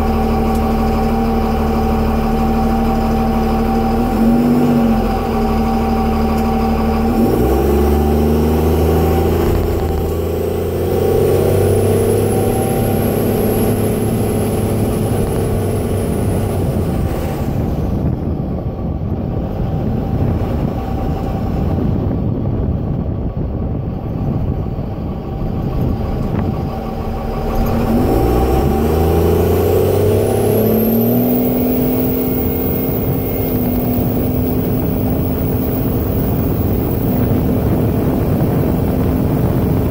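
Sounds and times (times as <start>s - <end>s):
diesel truck engine: 0.0s - 39.9s
road noise: 0.0s - 39.9s
high turbo whistle: 26.7s - 37.2s.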